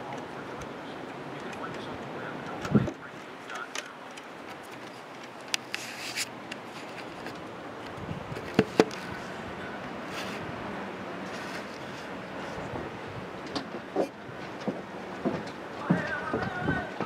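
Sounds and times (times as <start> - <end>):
strong wind rushing: 0.0 - 3.1, 7.5 - 17.0
camera knocking on wooden railing: 8.4 - 9.0.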